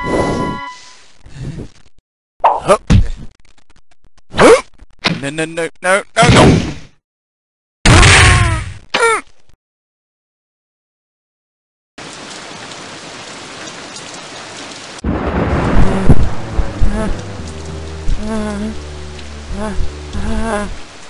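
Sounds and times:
steady rain: 12.0s - 21.0s
thunder rumble: 15.0s - 21.0s
low steady drone: 15.7s - 21.0s.

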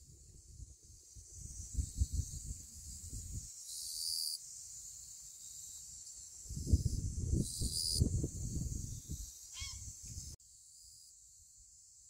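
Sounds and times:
wind buffeting microphone: 0.0s - 3.5s, 6.5s - 10.4s
steady high-pitched hiss: 0.0s - 12.0s.

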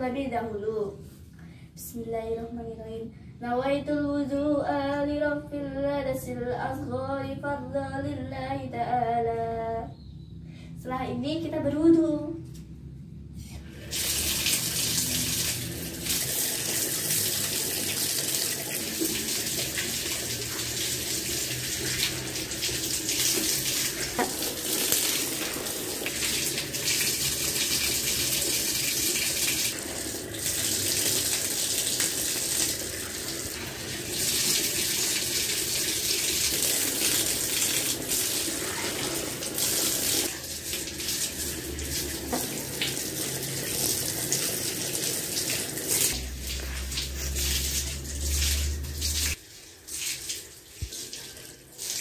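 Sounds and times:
tap water splashing: 14.0s - 52.0s.

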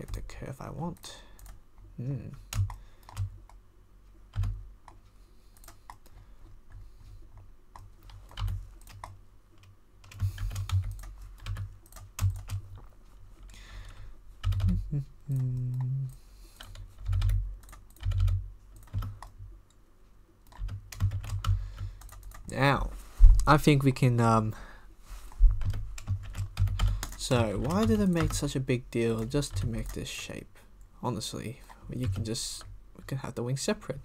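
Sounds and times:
keyboard keystrokes clicking: 7.8s - 12.6s, 14.4s - 15.9s, 16.6s - 19.4s, 20.5s - 22.5s, 25.6s - 28.4s.

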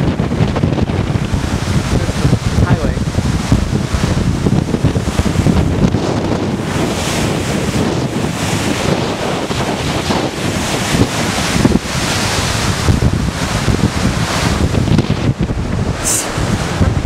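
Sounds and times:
wind buffeting microphone: 0.0s - 17.0s
river rapids rushing: 6.6s - 17.0s.

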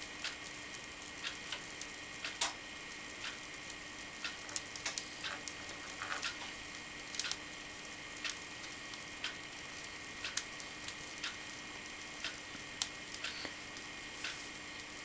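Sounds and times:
faint steady hum: 0.0s - 15.0s
foam cutter sharp ticks: 7.2s - 7.4s.

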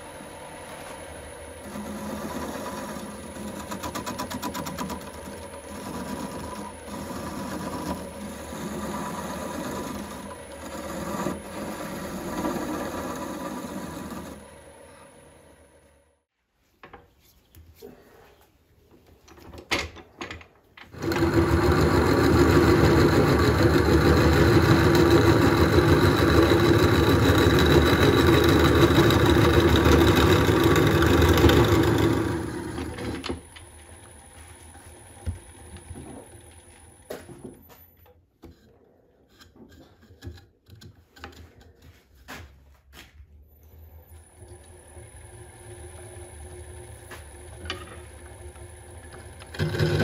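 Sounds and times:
drill bit grinding into wood: 1.5s - 14.6s, 21.0s - 33.5s, 44.6s - 50.0s.

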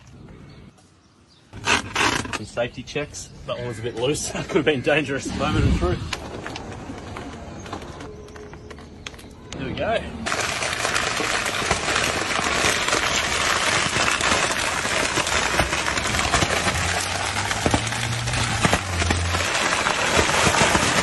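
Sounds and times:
plastic bottles crackling under car wheel: 1.5s - 2.8s, 5.8s - 9.3s, 10.2s - 21.0s.

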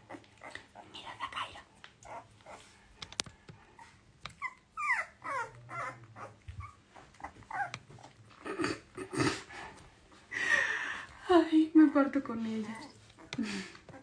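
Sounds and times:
dogs whining: 3.6s - 8.7s.

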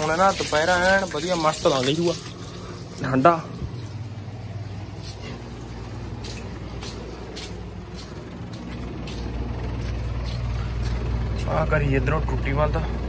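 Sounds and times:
electric motor hum: 3.6s - 11.9s.

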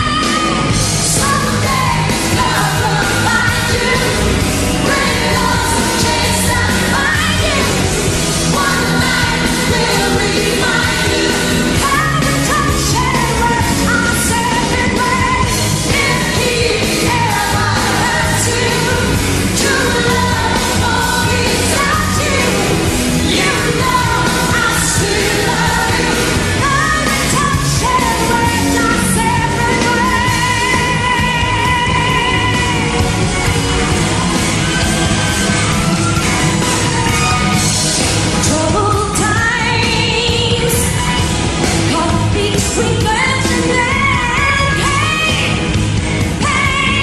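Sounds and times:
woman singing into a microphone: 0.0s - 33.0s, 38.4s - 41.2s, 41.9s - 45.6s, 46.4s - 47.0s
loud rock band playing: 0.0s - 47.0s.

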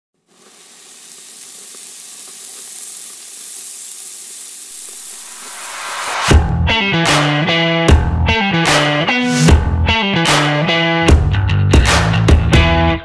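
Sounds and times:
meat sizzling on a grill: 0.2s - 6.3s
distorted electric guitar music: 4.8s - 13.0s.

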